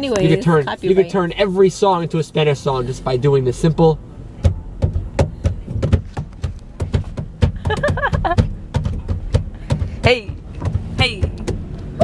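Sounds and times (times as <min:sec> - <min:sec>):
hand claps and low thumps: 0:04.4 - 0:11.9.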